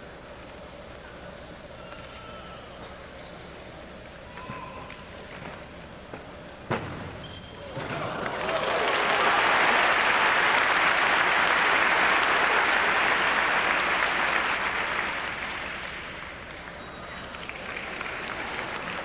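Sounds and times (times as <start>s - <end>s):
audience applauding: 7.9s - 19.0s.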